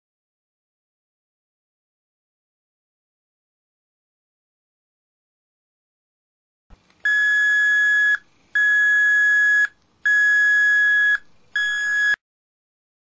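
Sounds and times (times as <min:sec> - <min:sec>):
electronic alarm beeps: 0:07.1 - 0:12.2.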